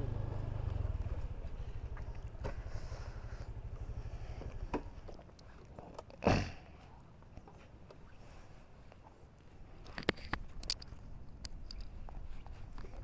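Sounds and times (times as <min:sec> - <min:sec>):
scooter engine running: 0:00.0 - 0:05.1.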